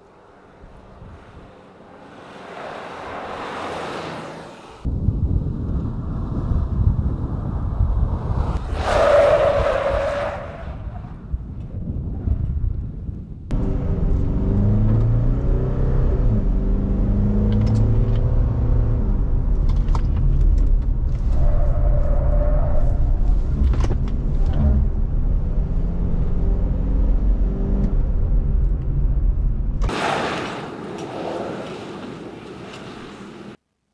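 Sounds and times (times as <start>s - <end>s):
road and wind noise: 0.0s - 33.6s.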